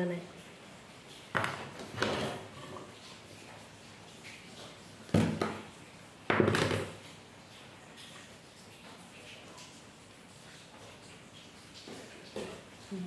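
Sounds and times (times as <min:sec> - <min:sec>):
knocks on bamboo cutting board: 0:05.1 - 0:05.6.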